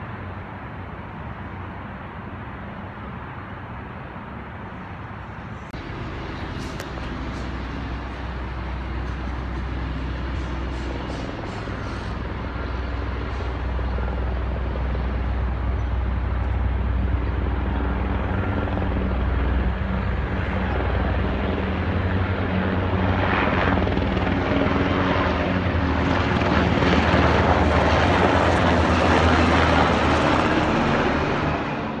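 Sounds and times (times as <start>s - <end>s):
helicopter flying over: 0.0s - 32.0s.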